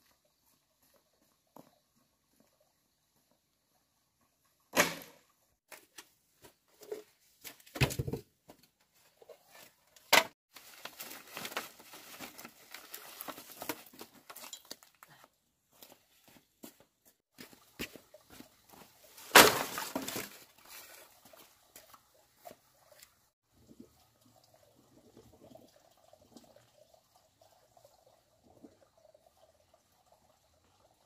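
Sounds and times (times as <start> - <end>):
rustling and scraping bamboo: 8.8 - 15.2, 18.7 - 22.0.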